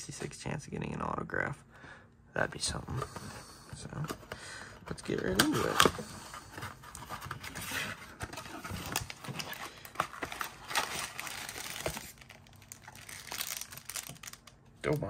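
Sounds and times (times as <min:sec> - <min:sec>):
wrapper rustling and crinkling: 0:06.8 - 0:15.0
cardboard tearing: 0:06.9 - 0:14.4.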